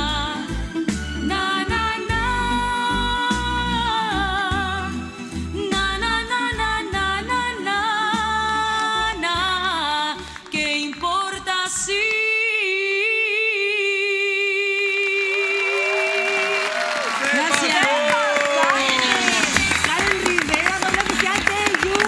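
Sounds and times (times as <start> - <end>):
backing music: 0.0 - 12.4, 17.4 - 22.0
person singing: 1.2 - 16.6
applause: 10.2 - 11.2, 15.0 - 22.0.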